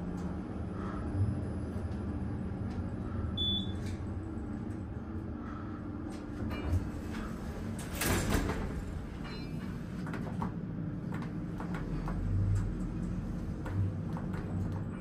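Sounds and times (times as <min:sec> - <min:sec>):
low hum: 0:00.0 - 0:15.0
elevator doors sliding: 0:05.9 - 0:15.0.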